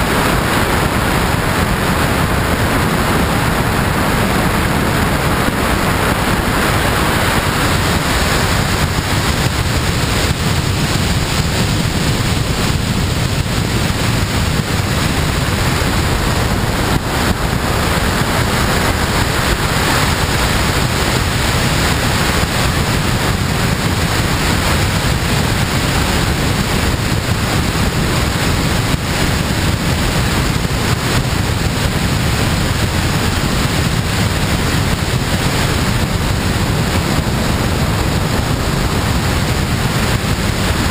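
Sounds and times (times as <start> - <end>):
wind noise over camera: 0.0 - 40.9.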